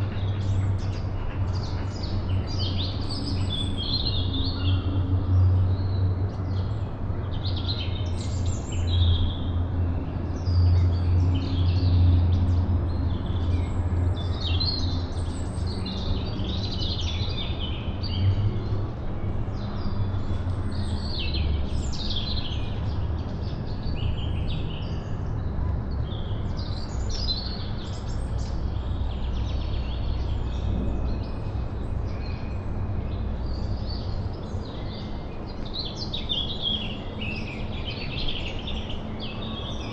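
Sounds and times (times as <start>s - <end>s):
low wind rumble: 0.0s - 39.9s
birds chirping and singing: 26.0s - 39.9s.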